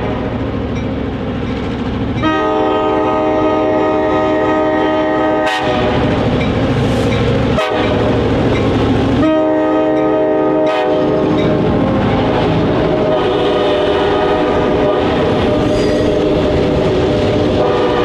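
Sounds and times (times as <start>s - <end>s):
locomotive engine and wheels rumbling: 0.0s - 18.0s
locomotive air horn: 2.2s - 6.2s, 7.5s - 8.2s, 9.1s - 18.0s.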